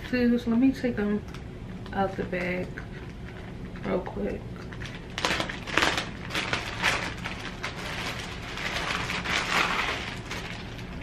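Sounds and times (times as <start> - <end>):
plastic bag crinkling: 4.6 - 11.0.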